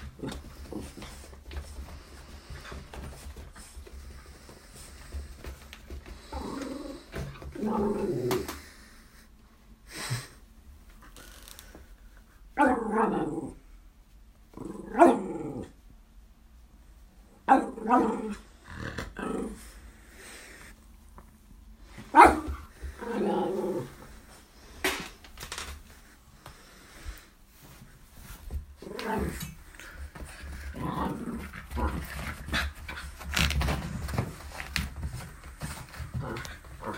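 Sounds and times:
small dog growling: 6.2 - 8.6, 17.6 - 19.8, 22.9 - 24.2, 28.8 - 33.0
dog barking: 22.1 - 22.5.

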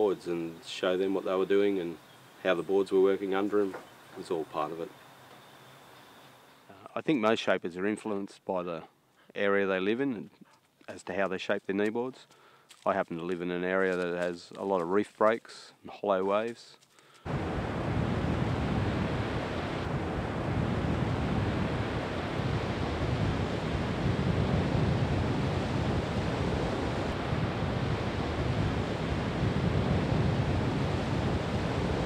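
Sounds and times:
ocean waves breaking: 17.3 - 32.0.

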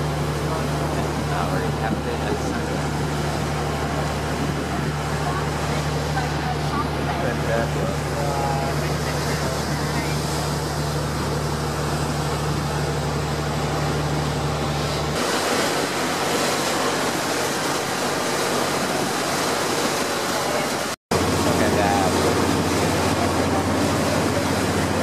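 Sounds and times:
wind on microphone: 0.0 - 12.8
rushing water: 0.0 - 25.0
speedboat engine hum: 0.0 - 25.0.

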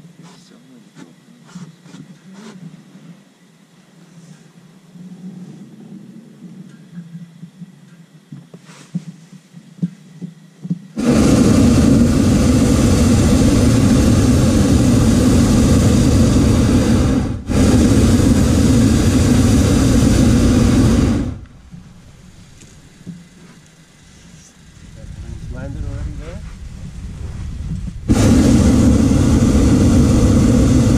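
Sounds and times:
propane burner firing: 10.9 - 30.9.

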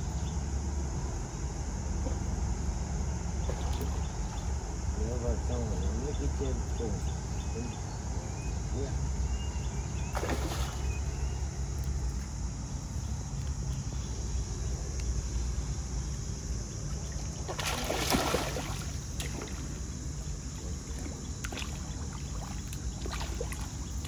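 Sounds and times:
steady low rumble: 0.0 - 24.0
fish splashing in water: 3.4 - 4.4, 10.1 - 11.1, 16.9 - 24.0.

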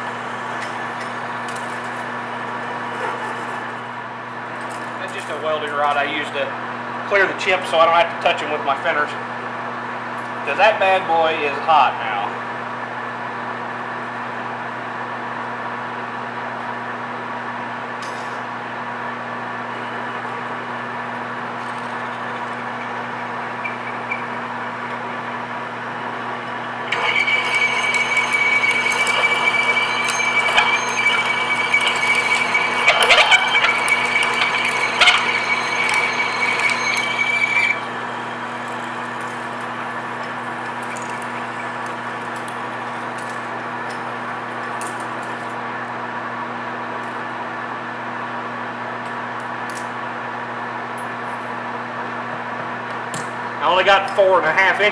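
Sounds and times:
lathe humming: 0.0 - 4.0, 19.8 - 45.6
drill cutting metal with high ring: 26.1 - 44.9.

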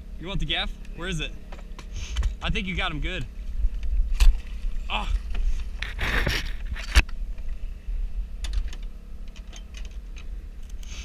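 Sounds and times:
boat motor humming: 0.0 - 11.0
gear clicking and rattling: 8.4 - 11.0.

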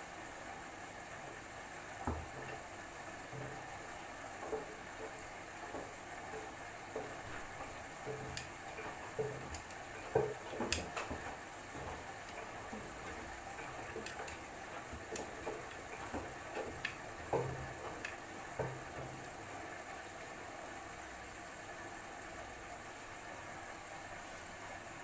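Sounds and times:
washing machine sloshing: 0.0 - 22.6
low motor hums: 0.8 - 20.2.

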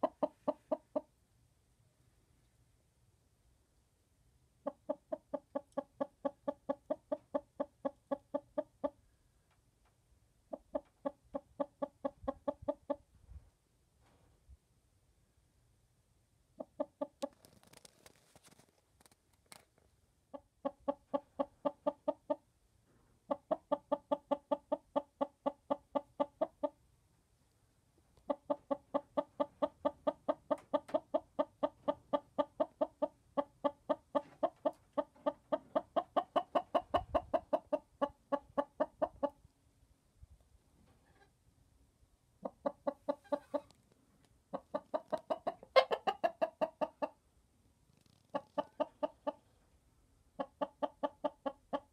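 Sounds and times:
hen clucking: 0.0 - 1.1, 4.6 - 9.0, 10.5 - 13.1, 20.3 - 22.5, 23.3 - 26.8, 28.2 - 39.4, 42.4 - 43.8, 44.5 - 47.2, 48.3 - 49.5, 50.4 - 51.9.

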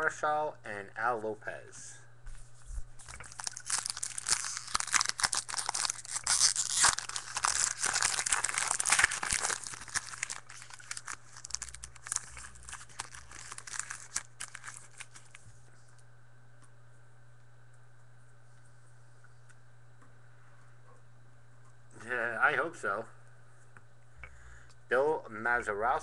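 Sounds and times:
foil wrapper tearing and crinkling: 3.0 - 15.4.

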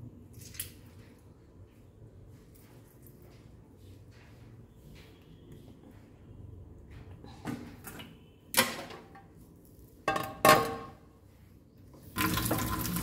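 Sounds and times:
metal kitchenware clinking: 10.1 - 11.0.

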